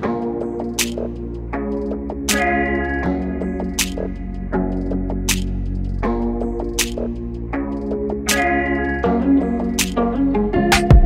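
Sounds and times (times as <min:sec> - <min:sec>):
sustained synth chords: 0:00.0 - 0:11.0.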